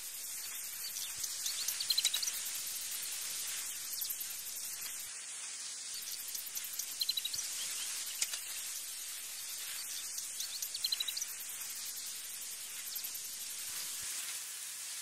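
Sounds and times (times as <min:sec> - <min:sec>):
insect trilling: 0:00.0 - 0:05.1, 0:05.9 - 0:14.0
bird chirps: 0:00.4 - 0:02.4, 0:06.0 - 0:08.7, 0:09.4 - 0:11.4.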